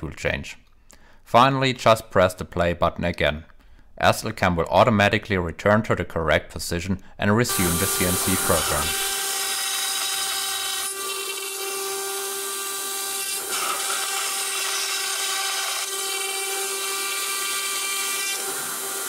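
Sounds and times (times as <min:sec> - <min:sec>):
router spindle whining while cutting foam: 0:07.5 - 0:19.0.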